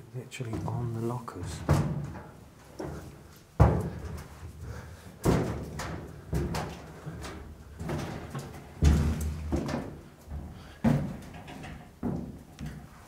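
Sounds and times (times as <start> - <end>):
footsteps thudding on metal lockers: 0.3 - 13.0.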